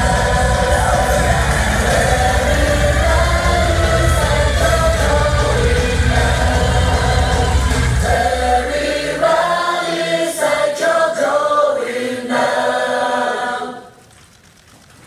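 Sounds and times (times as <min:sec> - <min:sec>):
amplified live backing music: 0:00.0 - 0:08.8
women singing in unison: 0:00.0 - 0:14.0.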